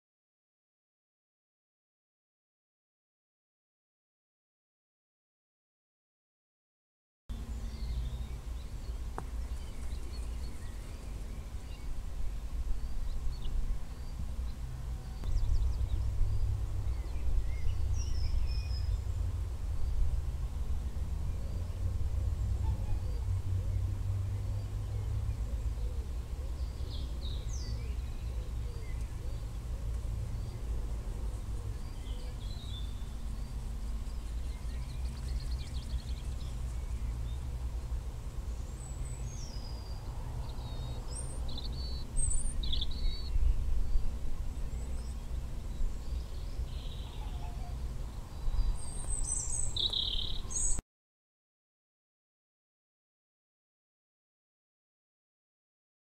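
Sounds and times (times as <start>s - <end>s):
steady low rumble: 7.3s - 38.9s
songbirds chirping: 7.3s - 50.8s.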